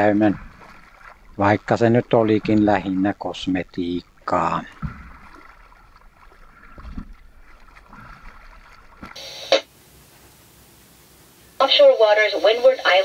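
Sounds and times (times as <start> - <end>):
water sloshing around hull: 0.0 - 9.2
faint hiss: 9.2 - 13.0.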